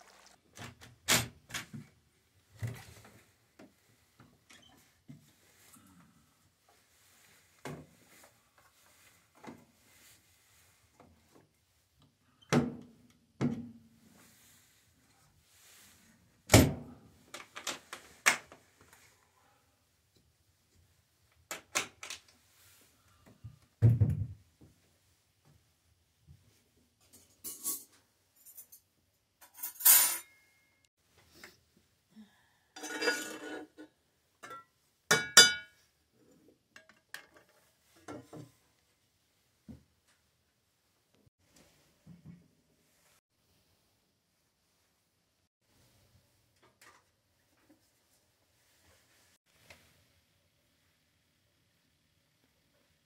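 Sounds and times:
metal utensil scraping in skillet: 0:32.8 - 0:33.9
metal cookware clinking: 0:32.8 - 0:35.8.

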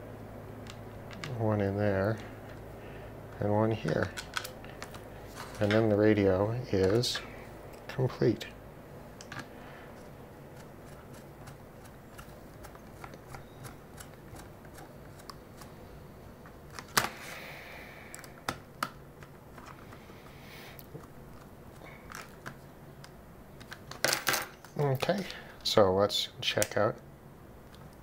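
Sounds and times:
ticks and clicks of handling: 0:00.6 - 0:01.4, 0:03.3 - 0:06.0, 0:06.7 - 0:08.0, 0:09.2 - 0:15.7, 0:18.1 - 0:25.7.

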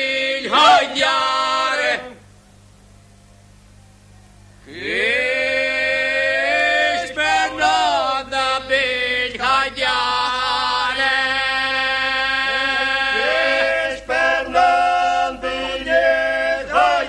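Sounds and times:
person chanting: 0:04.7 - 0:17.0.

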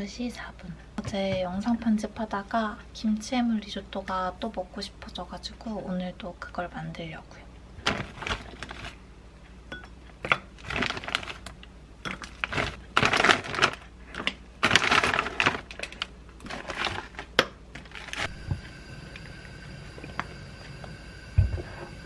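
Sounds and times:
plastic bags rustling: 0:07.8 - 0:09.0, 0:10.2 - 0:18.4
frozen pieces clattering into mug: 0:10.6 - 0:18.2.

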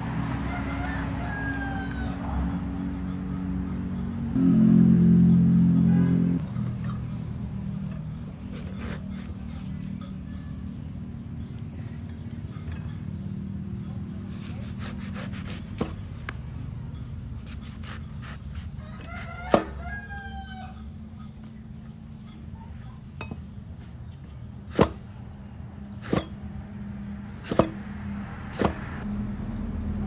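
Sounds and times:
rooster crowing: 0:00.2 - 0:02.7, 0:18.6 - 0:21.0
knife chopping on wooden board: 0:14.6 - 0:16.1, 0:17.4 - 0:19.8, 0:24.7 - 0:25.0, 0:27.4 - 0:27.8, 0:28.5 - 0:29.0.

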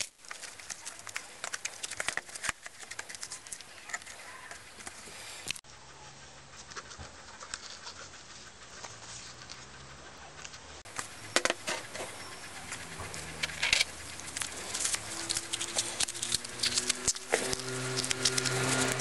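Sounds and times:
metal fasteners clicking and rattling: 0:10.9 - 0:19.0.

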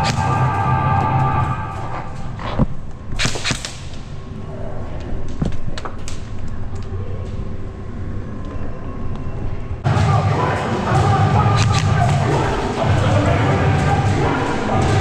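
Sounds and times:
airsoft shots snapping: 0:03.2 - 0:04.1, 0:11.6 - 0:12.1.

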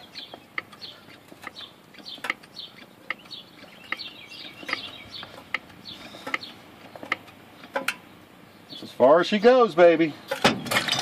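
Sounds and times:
hydraulic press clicks and creaks: 0:00.0 - 0:08.0, 0:10.2 - 0:11.0
birds chirping: 0:00.0 - 0:11.0.

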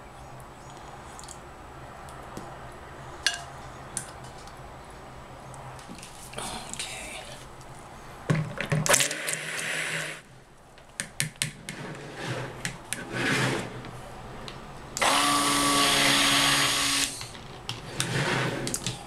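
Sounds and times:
stick blender running: 0:15.0 - 0:17.2.

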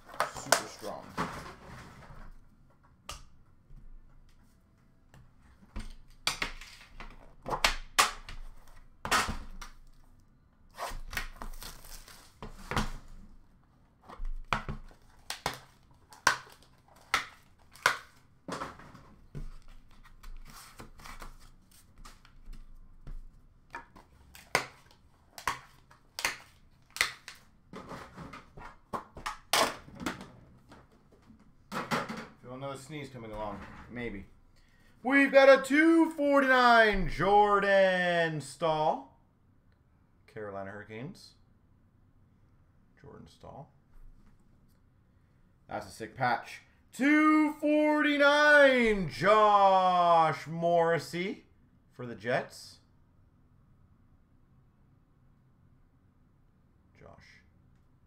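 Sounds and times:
packaging tearing and crinkling: 0:10.8 - 0:12.4.

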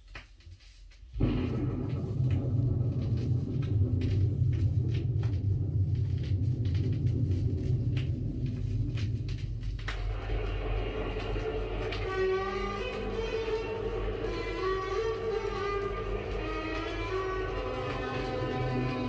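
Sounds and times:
vinyl crackles and pops: 0:00.0 - 0:19.0
low hum: 0:01.2 - 0:19.0
hiss: 0:06.9 - 0:19.0.

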